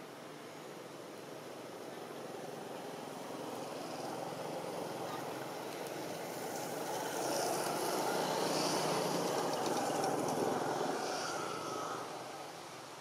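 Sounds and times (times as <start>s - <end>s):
passing vehicle engine: 6.2s - 12.8s.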